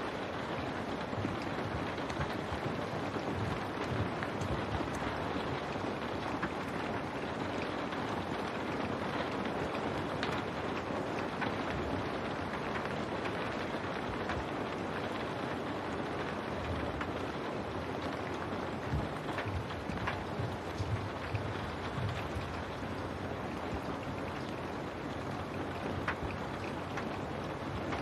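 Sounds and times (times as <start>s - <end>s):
rain on window glass: 0.0s - 28.0s.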